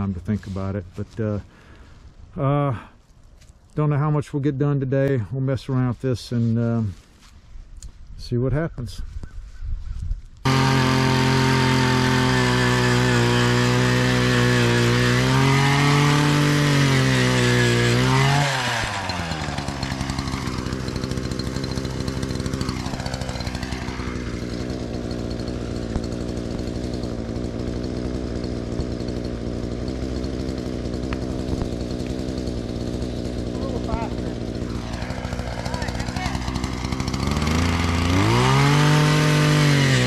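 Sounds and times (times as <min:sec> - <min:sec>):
post hole auger engine: 0:10.4 - 0:40.0.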